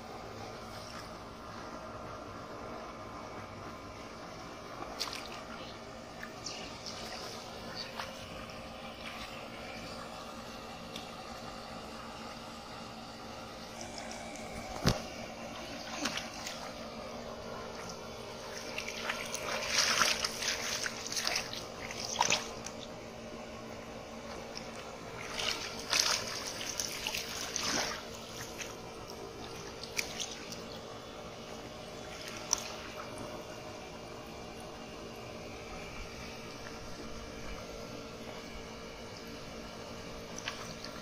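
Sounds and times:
faint steady hum: 0.0s - 41.0s
hands splashing in water: 4.9s - 5.5s, 17.8s - 22.8s, 24.5s - 30.7s.

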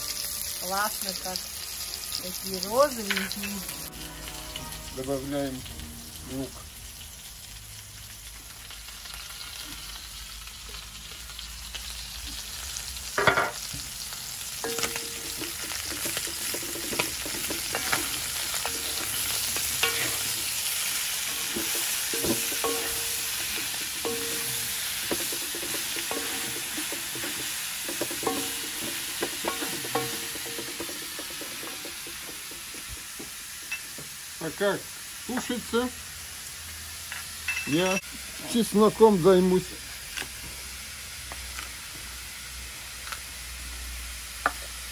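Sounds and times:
food sizzling in a wok: 0.0s - 44.9s
spatula scraping and knocking pan: 14.7s - 33.4s.

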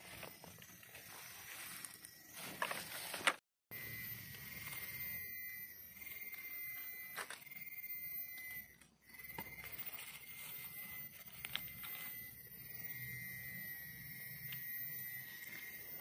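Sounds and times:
grass and leaves rustling: 0.0s - 3.4s, 9.8s - 12.1s
high-pitched tone: 0.0s - 16.0s.

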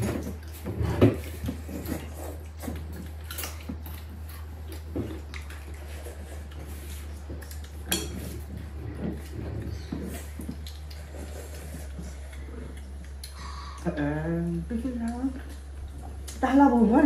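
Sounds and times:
steady low hum: 0.0s - 17.0s
pots and utensils clinking: 7.8s - 10.2s.

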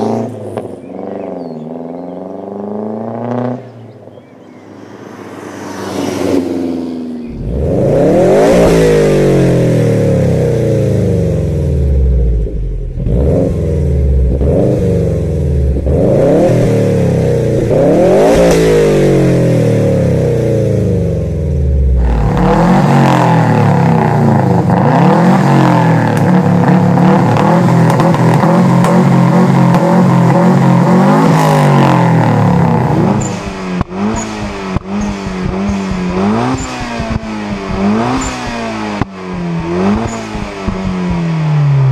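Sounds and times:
car engine revving: 0.0s - 3.9s, 4.6s - 41.9s
car passing by: 4.4s - 8.0s
car exhaust with throttle blips: 6.2s - 41.9s.

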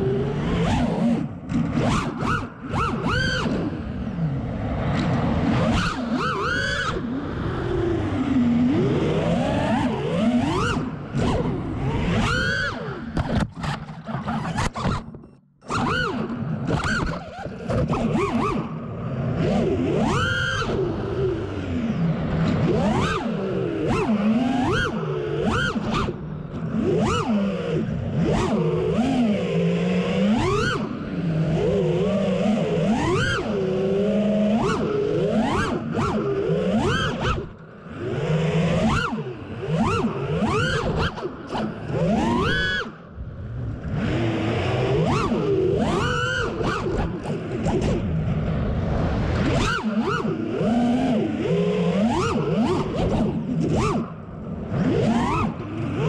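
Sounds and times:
drone motors and propellers whining: 0.0s - 56.0s.

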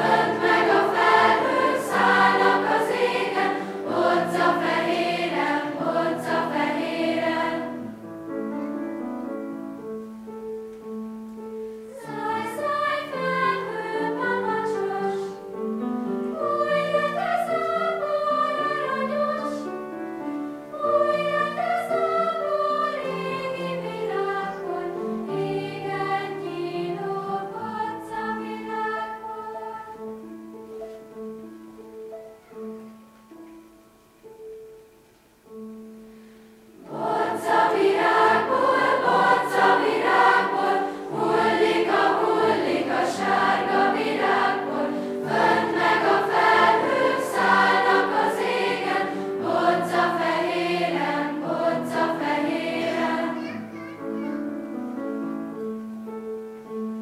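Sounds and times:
children's choir singing: 0.0s - 8.1s, 11.9s - 31.4s, 36.8s - 53.8s.

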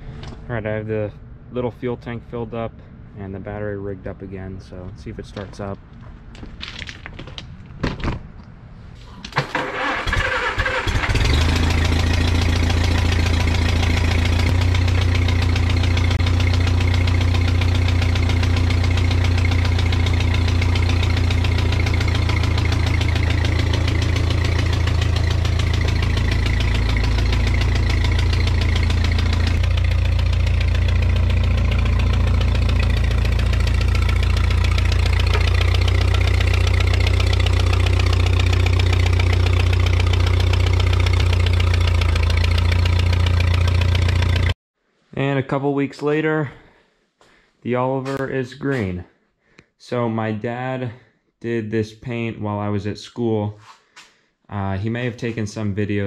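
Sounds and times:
tractor engine cranking: 9.3s - 44.5s
tractor engine running: 9.4s - 44.6s.

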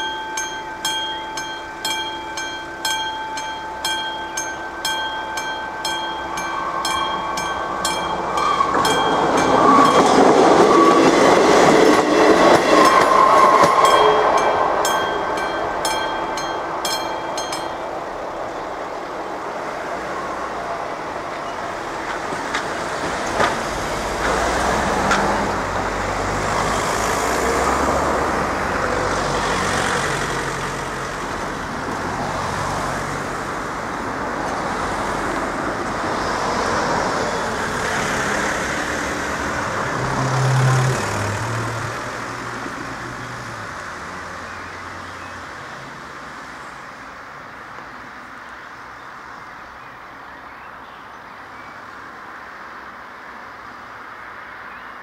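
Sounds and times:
level crossing bell ringing: 0.0s - 11.4s, 12.7s - 18.2s
car engines rumbling: 0.0s - 48.5s
train passing: 0.0s - 50.8s.

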